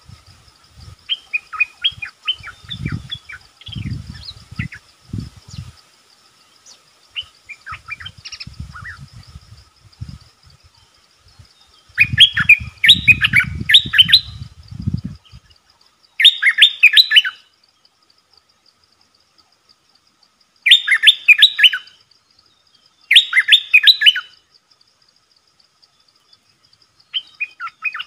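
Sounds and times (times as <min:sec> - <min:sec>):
bird chirping: 0:00.8 - 0:05.8, 0:06.4 - 0:18.2, 0:20.6 - 0:24.5, 0:25.8 - 0:28.0.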